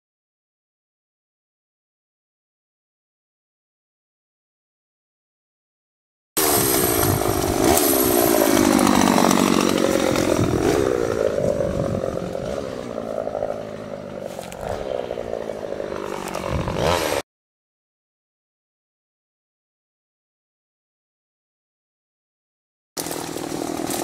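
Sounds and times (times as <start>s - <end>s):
chainsaw cutting branches: 6.4s - 17.2s, 23.0s - 24.0s.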